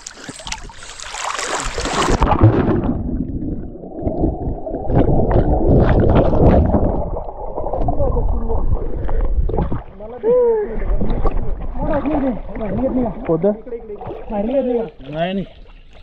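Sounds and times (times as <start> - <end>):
water splashing from swimming: 0.0 - 10.1
muffled underwater churning: 0.0 - 16.0.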